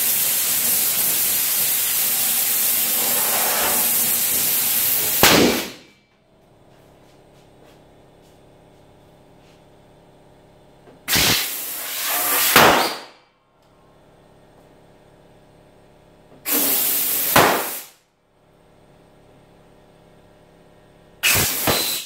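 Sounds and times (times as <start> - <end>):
compressed air hissing: 0.0 - 5.9, 11.1 - 13.0, 16.5 - 18.0, 21.2 - 22.0.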